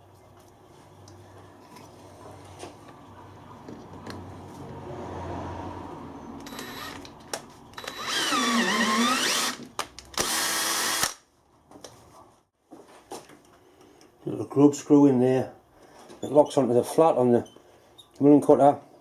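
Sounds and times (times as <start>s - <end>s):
power drill motor whining: 6.4s - 11.2s.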